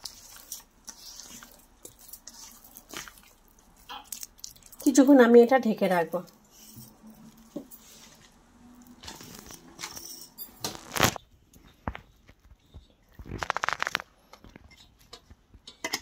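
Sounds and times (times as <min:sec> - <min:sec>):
hand squishing wet dough: 0:00.0 - 0:09.6.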